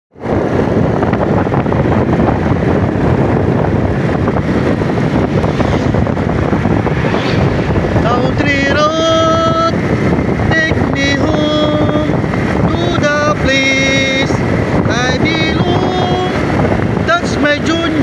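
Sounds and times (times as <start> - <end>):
motorcycle engine and road noise: 0.1 - 18.0
wind over microphone: 0.1 - 18.0
person singing: 8.0 - 18.0.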